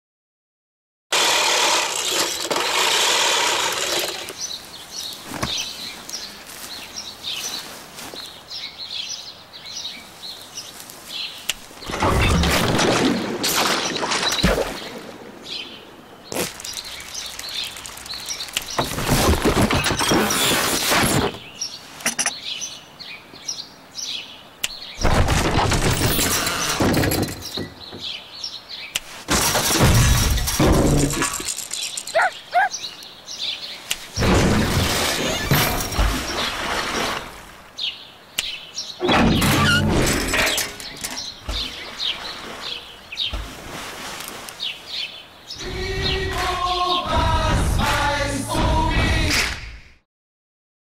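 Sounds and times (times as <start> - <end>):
push lawn mower whirring: 1.1 - 4.5, 16.3 - 19.3
songbirds chirping: 3.1 - 48.4.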